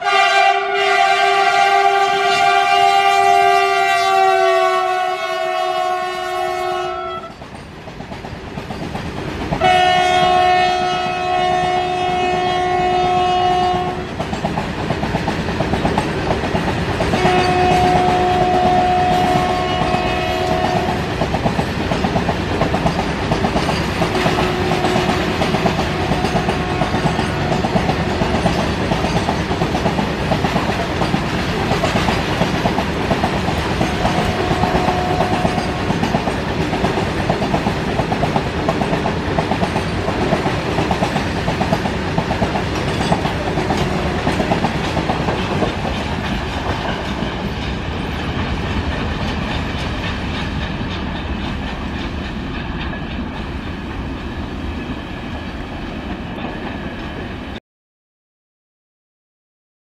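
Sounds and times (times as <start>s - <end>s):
train wheels rattling over rail joints: 7.3s - 10.4s, 13.6s - 57.3s.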